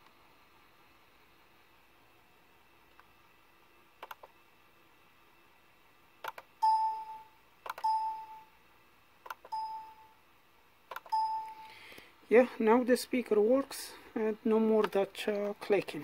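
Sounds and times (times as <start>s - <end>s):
sharp click: 10.9s - 11.2s.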